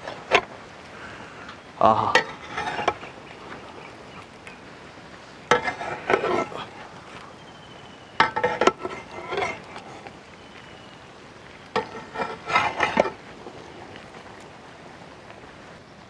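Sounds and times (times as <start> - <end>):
metal ladle scraping a pot: 2.1 - 3.2, 5.5 - 6.7, 8.2 - 10.1, 11.7 - 13.3.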